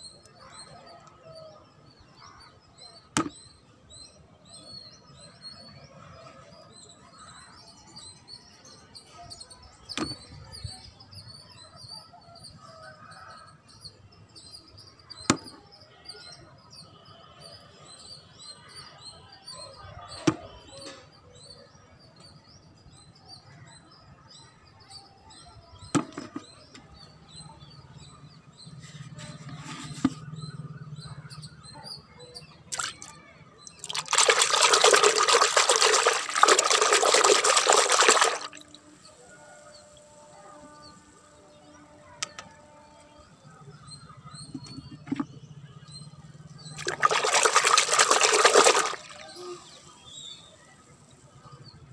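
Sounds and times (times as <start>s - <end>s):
small birds chirping: 24.9s - 51.9s
water pouring: 32.7s - 33.1s, 33.7s - 38.8s, 44.6s - 45.3s, 46.8s - 49.4s.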